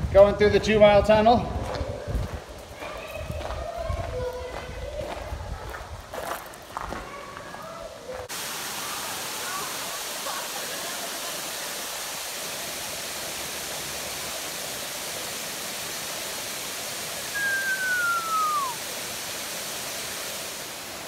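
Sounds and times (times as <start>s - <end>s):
waterfall splashing over rocks: 8.2s - 21.0s
downward sliding whistle: 17.3s - 18.8s.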